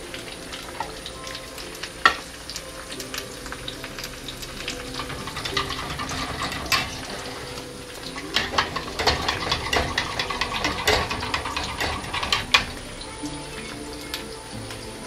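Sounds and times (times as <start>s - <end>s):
vegetables sizzling in a frying pan: 0.0s - 15.0s
eggs beaten in a ceramic bowl: 8.2s - 12.8s.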